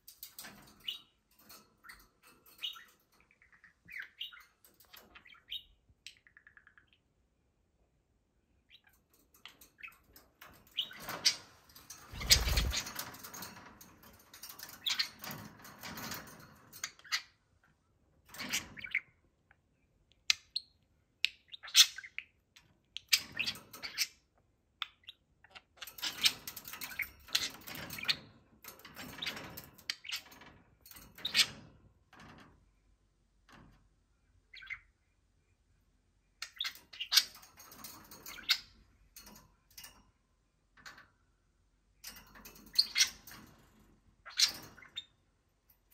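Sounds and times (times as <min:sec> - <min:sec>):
wings flapping: 0:11.9 - 0:13.3
budgerigars chirping and warbling: 0:12.2 - 0:13.0, 0:21.4 - 0:22.4, 0:34.5 - 0:35.0, 0:36.4 - 0:37.5, 0:44.2 - 0:45.1.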